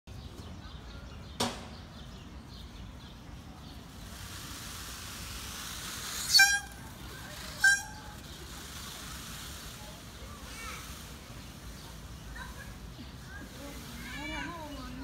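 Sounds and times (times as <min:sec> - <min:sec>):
sharp knock: 0:01.4 - 0:01.8
peafowl calling: 0:06.0 - 0:08.5.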